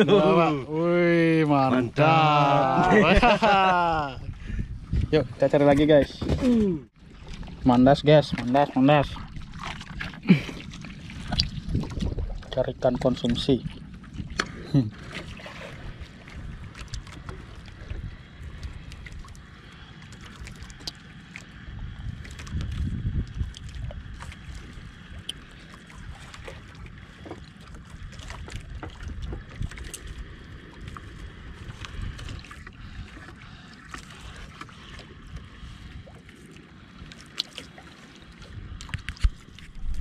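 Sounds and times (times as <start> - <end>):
water lapping against boat: 0.0 - 40.0
wind buffeting microphone: 2.7 - 19.4, 21.6 - 25.3, 25.9 - 33.6.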